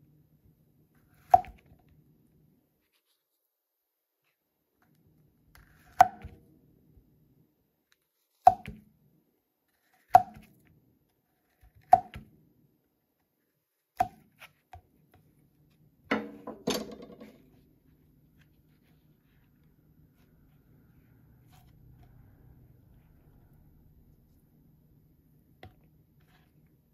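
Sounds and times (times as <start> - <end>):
knife slicing mushroom: 9.9 - 10.5.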